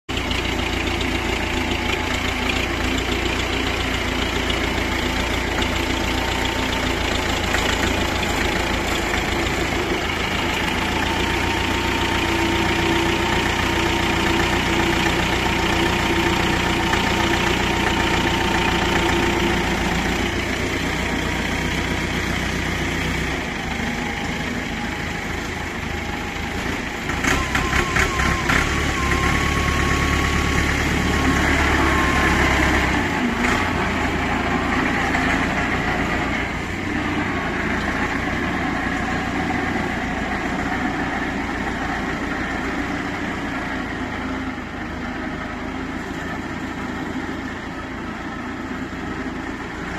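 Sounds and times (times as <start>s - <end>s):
tractor diesel engine running: 0.0s - 49.9s.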